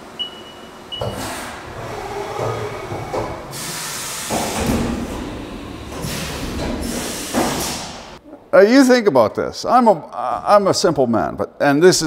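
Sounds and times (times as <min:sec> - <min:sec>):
cnc milling machine moving: 0:01.0 - 0:07.9.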